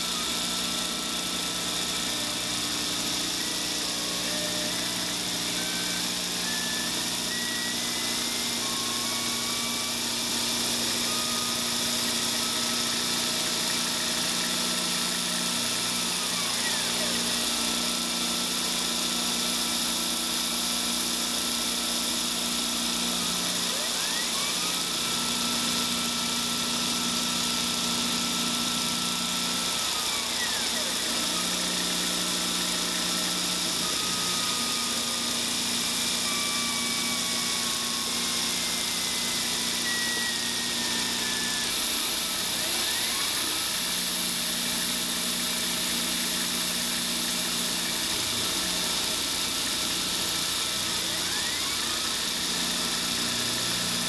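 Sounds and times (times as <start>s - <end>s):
milling machine cutting hiss: 0.0s - 18.8s, 23.2s - 54.0s.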